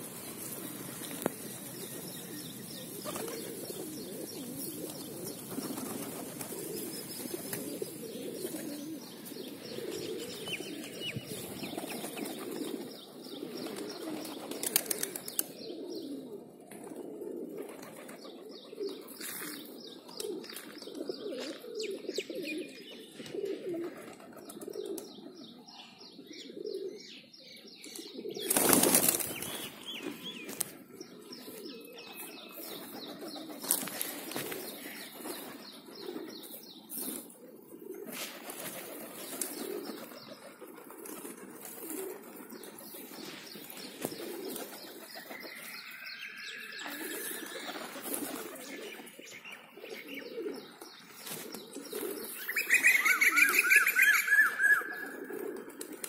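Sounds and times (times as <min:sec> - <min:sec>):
pigeons cooing: 0:00.0 - 0:56.0
wings flapping: 0:02.9 - 0:03.9, 0:04.8 - 0:07.8, 0:13.6 - 0:15.5, 0:28.5 - 0:29.8, 0:32.8 - 0:36.3, 0:38.1 - 0:45.7, 0:47.5 - 0:48.8.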